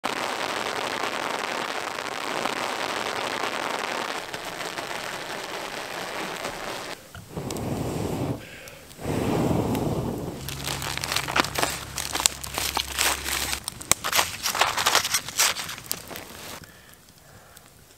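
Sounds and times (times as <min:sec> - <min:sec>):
steady rain hiss: 0:00.0 - 0:17.9
deep rushing sound: 0:09.0 - 0:14.0.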